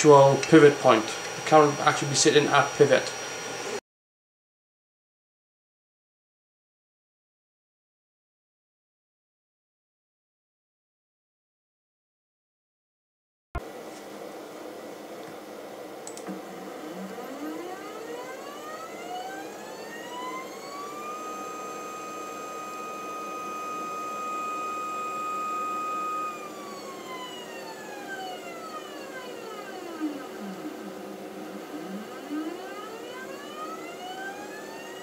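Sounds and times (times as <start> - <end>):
stepper motor whining: 0.0 - 3.8, 16.1 - 35.0.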